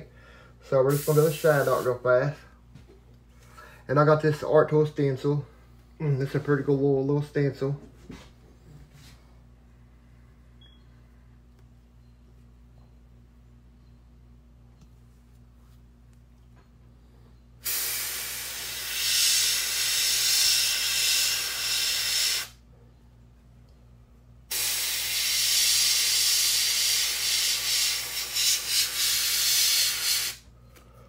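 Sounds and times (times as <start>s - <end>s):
airbrush spraying hiss: 0.9s - 2.0s, 17.6s - 22.6s, 24.5s - 30.4s.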